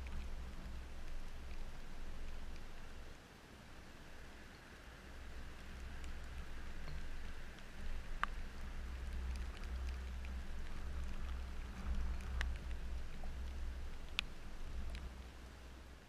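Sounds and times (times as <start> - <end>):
raindrops ticking close by: 0.0 - 16.0
steady rain falling: 0.0 - 16.0
low rumble: 5.1 - 16.0.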